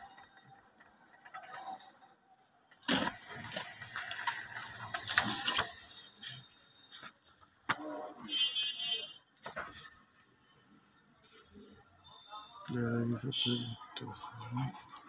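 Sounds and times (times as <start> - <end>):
paper sheet rustling: 2.4 - 8.4, 9.4 - 10.0.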